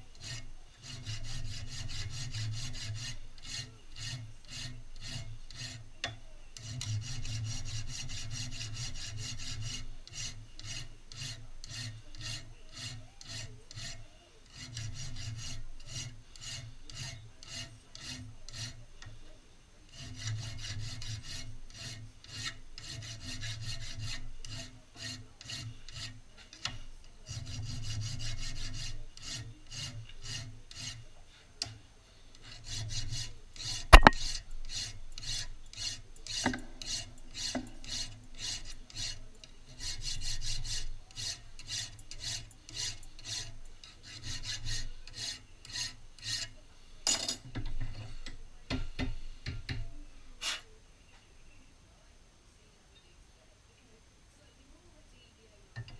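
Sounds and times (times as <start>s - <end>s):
hand file rasping on metal: 0.0s - 19.2s, 19.9s - 46.6s
sharp knocks: 34.0s - 34.2s.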